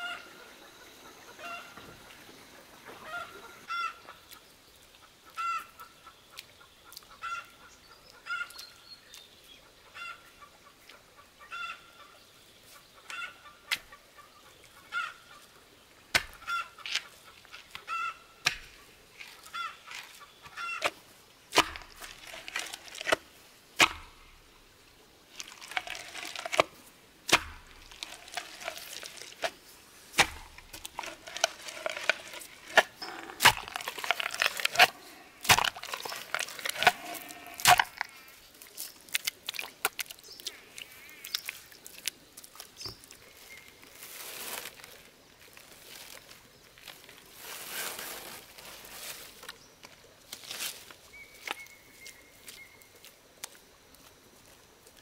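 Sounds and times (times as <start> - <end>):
chickens calling: 0.0 - 4.4, 16.4 - 21.0, 30.2 - 38.3
pole pounding into mud: 21.5 - 23.2, 23.8 - 24.2, 27.3 - 28.8, 30.1 - 38.0.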